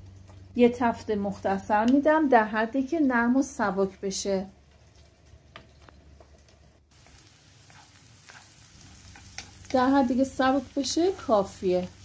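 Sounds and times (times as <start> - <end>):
onions frying in oil: 6.9 - 12.0
spatula scraping and tapping pan: 7.0 - 9.8.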